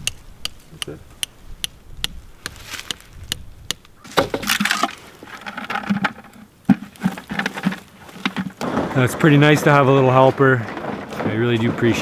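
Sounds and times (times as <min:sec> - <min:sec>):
plastic bucket knocking against tree: 0:04.1 - 0:08.8.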